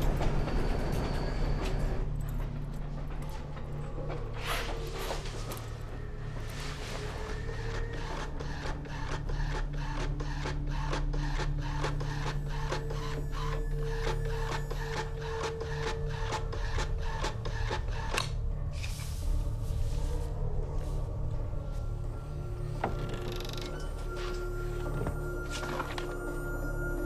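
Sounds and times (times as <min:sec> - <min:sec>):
printer mechanical whine: 0:07.2 - 0:18.3.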